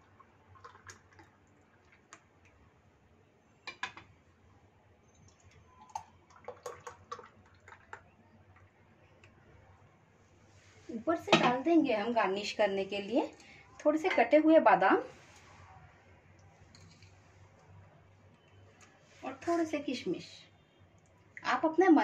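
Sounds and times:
milkshake pouring: 0.0 - 2.6, 5.0 - 8.8.

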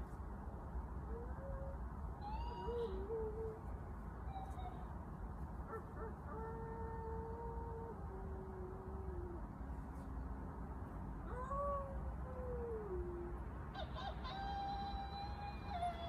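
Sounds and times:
person howling like wolf: 14.6 - 16.0.

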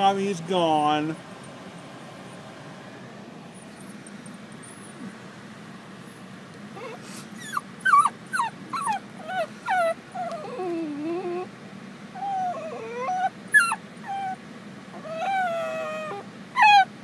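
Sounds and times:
dog whining and crying: 6.8 - 17.0.

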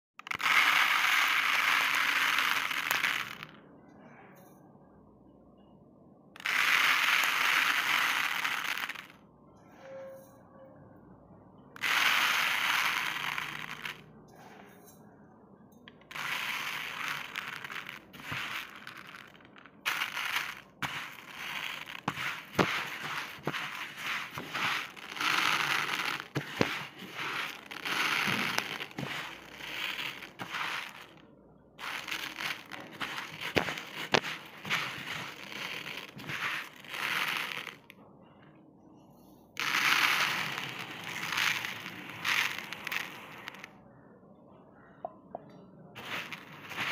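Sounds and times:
rice grains pouring into plastic tub: 0.2 - 3.5, 6.4 - 9.2, 11.8 - 14.0, 16.1 - 31.2, 31.8 - 37.9, 39.6 - 43.7, 46.0 - 46.9
single grains ticking: 0.2 - 3.5, 6.4 - 9.2, 11.8 - 14.0, 16.0 - 31.2, 31.8 - 37.9, 39.6 - 43.7, 46.0 - 46.9.

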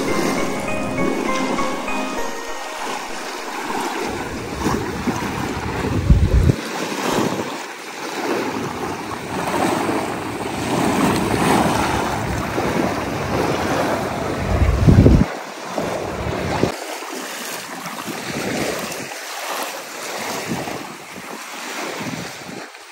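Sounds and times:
sea waves washing on beach: 0.0 - 22.9
wind buffeting microphone: 4.4 - 7.6, 8.6 - 16.7.

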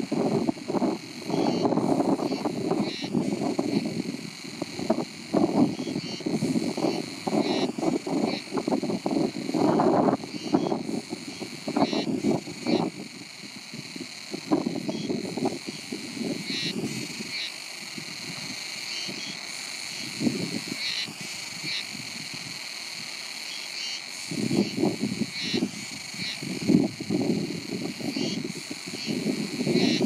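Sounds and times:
wind buffeting microphone: 0.0 - 23.0, 24.2 - 30.0
insect chirps: 0.0 - 30.0
shrill insect chorus: 0.0 - 30.0.

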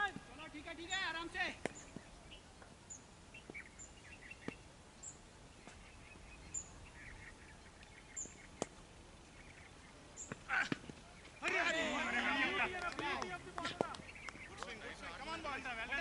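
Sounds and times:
small bird chirping: 1.7 - 11.4, 14.0 - 14.6.

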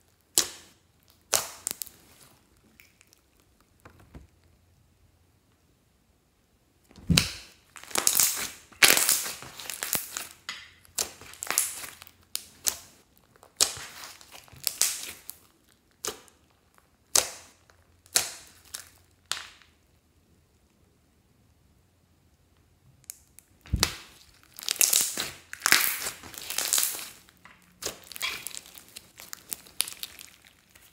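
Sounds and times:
slime squeezed and stretched by hand: 6.9 - 16.3, 23.6 - 30.9.

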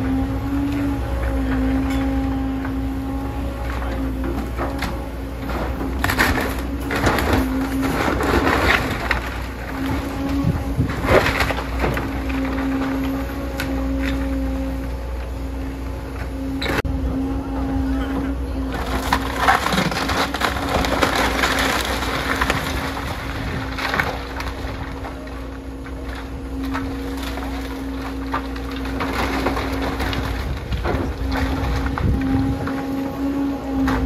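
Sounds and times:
excavator engine hum: 0.0 - 34.0
wood cracking and splintering: 3.6 - 14.3, 18.7 - 33.1.

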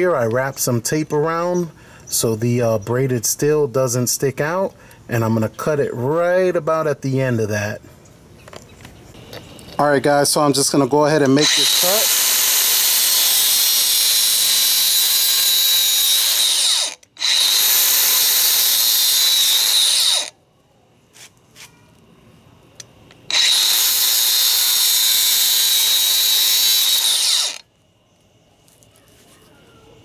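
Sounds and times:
power tool high-pitched whine: 11.2 - 20.3, 23.3 - 27.7.

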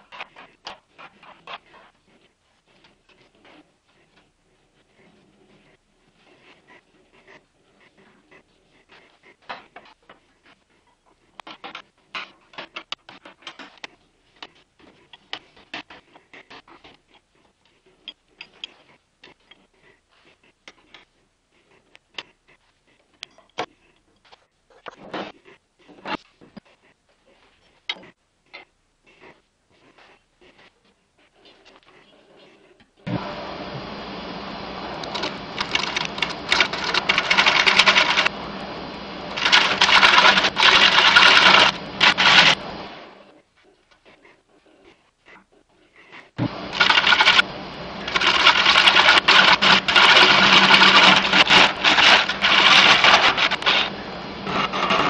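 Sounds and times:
turning tool scraping wood: 0.0 - 33.1, 35.0 - 38.4, 39.3 - 55.0
wood lathe humming: 34.4 - 42.8, 46.5 - 55.0.

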